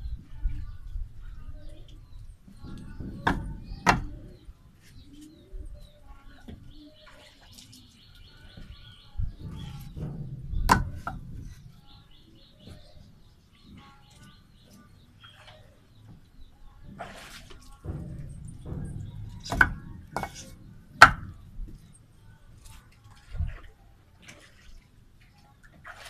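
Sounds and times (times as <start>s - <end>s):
birds chirping: 0.0s - 22.6s
bricks clacking together: 18.2s - 21.4s.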